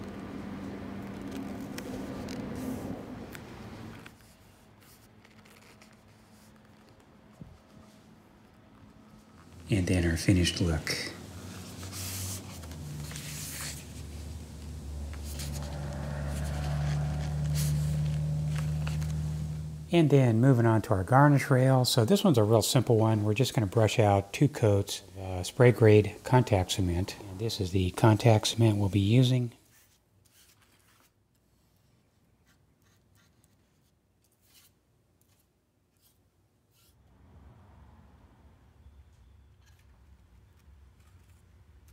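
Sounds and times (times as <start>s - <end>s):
low mechanical hum: 0.0s - 21.5s
paintbrush swishing: 9.4s - 19.9s
low rumble: 11.2s - 20.0s.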